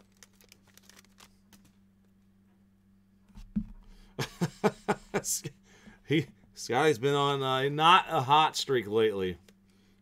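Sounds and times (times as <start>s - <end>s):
cards ticking and rustling: 0.0s - 1.8s.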